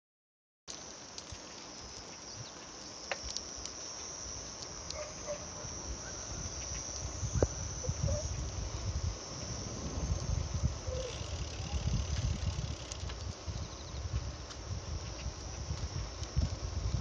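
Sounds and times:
insects chorus: 0.7s - 17.0s
low rumble on microphone: 5.3s - 17.0s.

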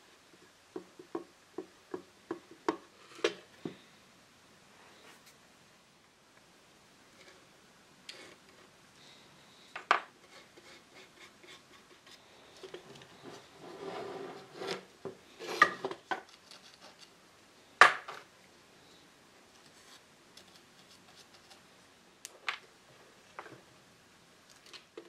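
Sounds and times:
rubbing and scraping: 10.0s - 17.2s, 19.6s - 21.7s.

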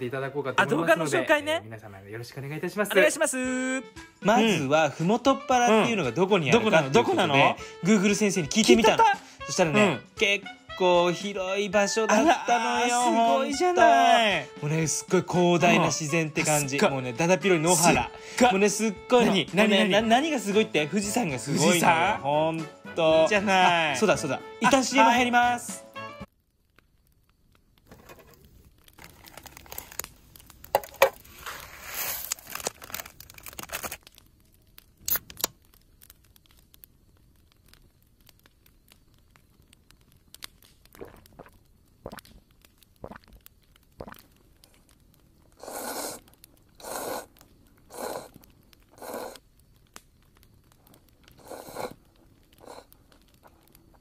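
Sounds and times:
plastic wrapper crinkling and tearing: 27.8s - 41.5s.

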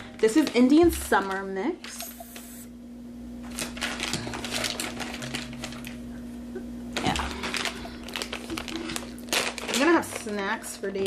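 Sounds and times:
snack pouch crinkling: 3.4s - 6.0s, 7.0s - 10.7s.

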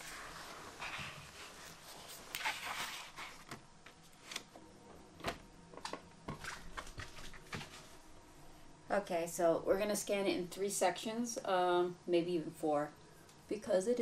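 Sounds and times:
paper board rustling: 0.0s - 4.5s, 5.8s - 8.0s.

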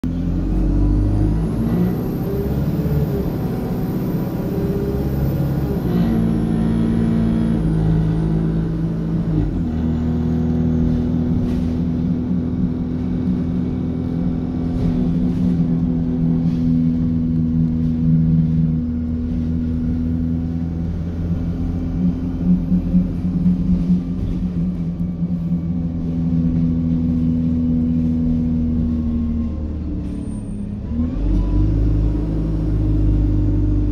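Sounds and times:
diesel engine rumble: 0.0s - 33.9s.

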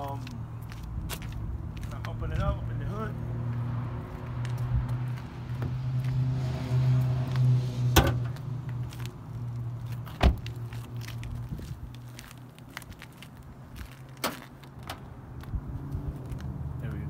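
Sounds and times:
car door shutting thump: 10.2s - 10.5s.

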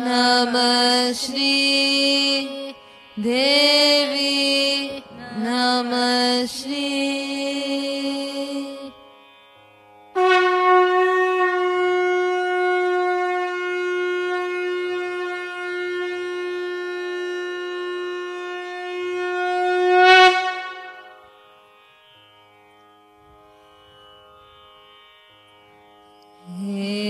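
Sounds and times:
conch shell blown: 10.1s - 21.3s.

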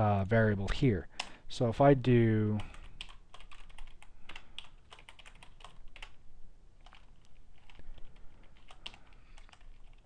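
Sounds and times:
keyboard typing: 2.6s - 6.2s, 6.8s - 10.0s.

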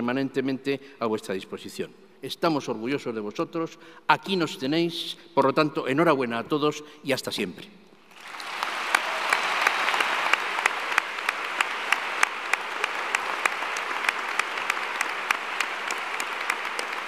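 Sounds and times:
large audience applauding: 8.1s - 17.0s
nearby hands clapping evenly: 8.2s - 17.0s.

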